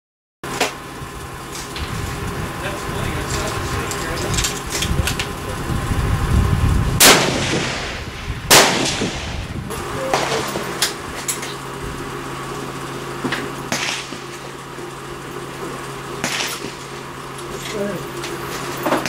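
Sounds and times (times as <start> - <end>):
rifle shots with ringing echo: 7.0 - 9.5, 10.1 - 10.8, 13.7 - 14.3, 16.2 - 16.9.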